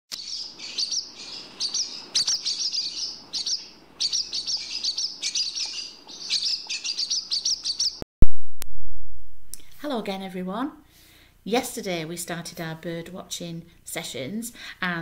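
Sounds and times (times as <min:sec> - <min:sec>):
swallow twittering: 0:00.2 - 0:08.0.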